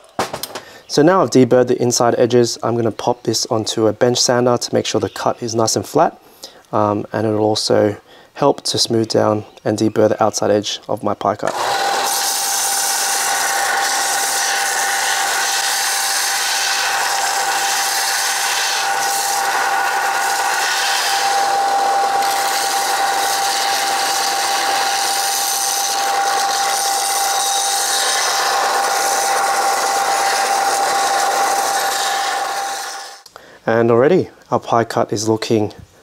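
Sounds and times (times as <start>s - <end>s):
belt sander motor whine: 11.5s - 33.3s
grinding hiss of metal sanded: 12.0s - 33.2s.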